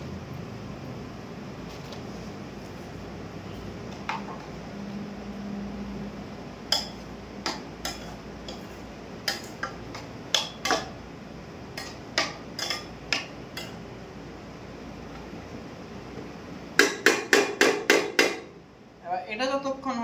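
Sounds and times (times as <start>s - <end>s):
metal spoon clinking in pan: 6.7s - 8.6s, 11.8s - 13.8s.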